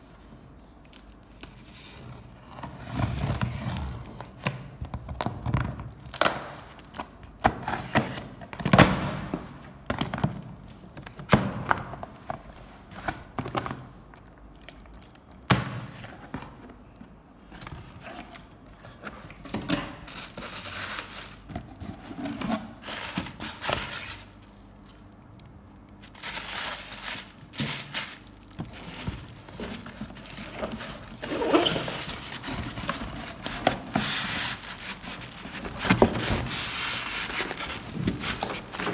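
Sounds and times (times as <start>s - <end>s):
plastic wrap crinkling: 16.8s - 38.9s
cardboard scraping: 28.6s - 38.9s.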